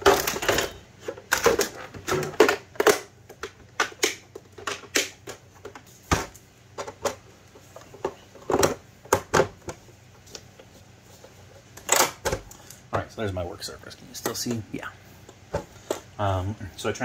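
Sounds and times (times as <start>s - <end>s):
plastic table clacking and knocking: 0.0s - 7.2s, 7.8s - 9.8s.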